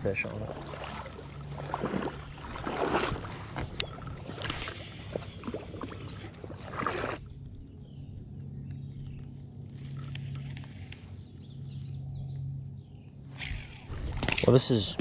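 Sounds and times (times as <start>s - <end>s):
water sloshing around wading legs: 0.0s - 7.4s.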